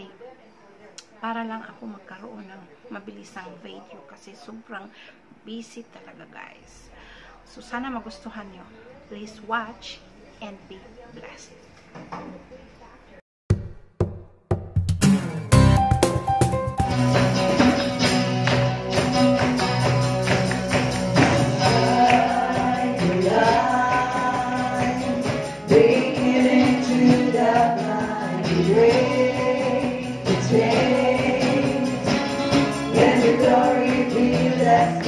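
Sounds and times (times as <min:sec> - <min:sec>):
drum kit: 0:13.5 - 0:35.0
acoustic guitar: 0:15.0 - 0:35.0
people singing: 0:21.1 - 0:35.0.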